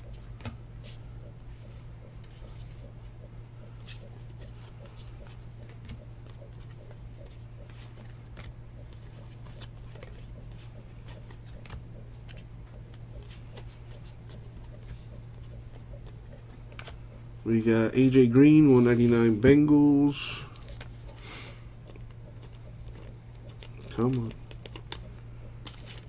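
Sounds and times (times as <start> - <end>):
steady low hum: 0.0 - 26.0
trading cards being thumbed through: 21.9 - 26.0.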